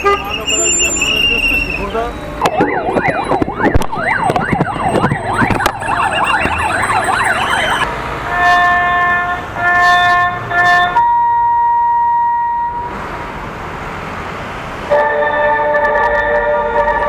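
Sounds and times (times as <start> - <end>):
steady pitched tones: 0.0 - 7.9
siren wailing: 0.3 - 7.9.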